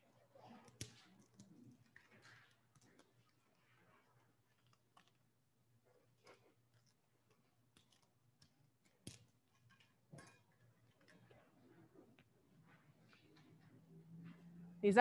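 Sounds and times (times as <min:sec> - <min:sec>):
small clicks and knocks: 0:06.8 - 0:11.4.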